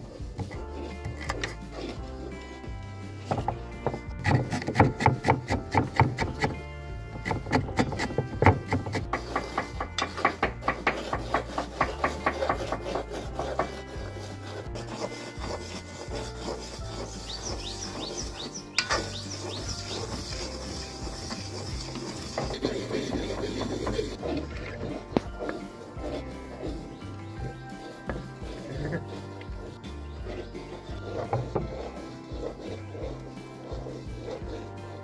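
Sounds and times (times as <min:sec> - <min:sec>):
metal spatula scraping semolina: 0:00.0 - 0:35.0
knife chopping on wooden board: 0:03.3 - 0:06.6, 0:07.2 - 0:14.4, 0:21.3 - 0:34.4.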